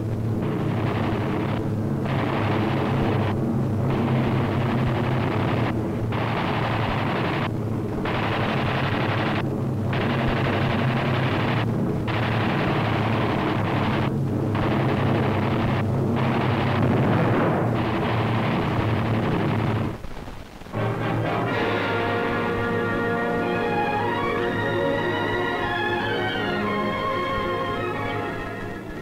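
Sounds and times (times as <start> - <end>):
steady low drone: 0.0 - 20.0, 20.6 - 29.0
machine-gun fire: 0.4 - 20.8.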